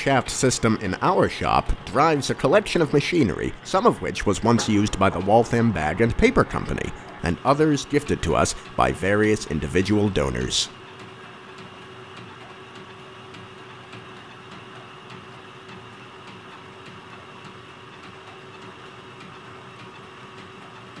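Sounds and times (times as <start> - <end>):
line shaft humming: 0.0 - 10.8.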